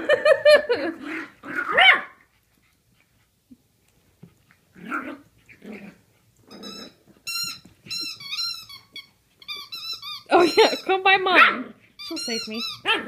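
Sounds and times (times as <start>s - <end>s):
puppies growling: 0.7s - 2.3s, 4.4s - 7.2s
puppies squeaking: 6.4s - 13.0s.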